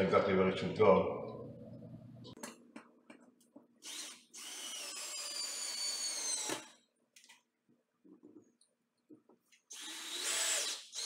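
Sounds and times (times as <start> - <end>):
cordless drill driving screws: 3.8 - 6.8, 9.7 - 11.0.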